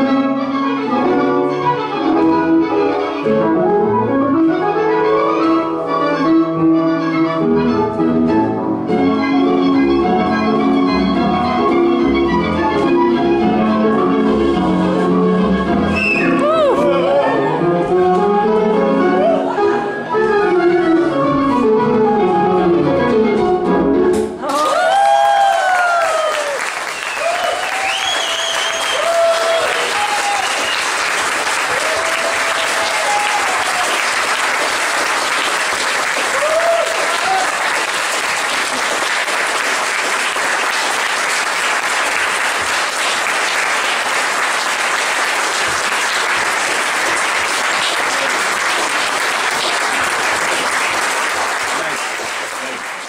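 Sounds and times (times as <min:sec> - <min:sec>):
people whooping and cheering: 0:16.0 - 0:17.6, 0:19.2 - 0:20.2, 0:24.4 - 0:31.0, 0:31.6 - 0:34.3, 0:36.2 - 0:37.8
audience applauding: 0:24.4 - 0:53.0.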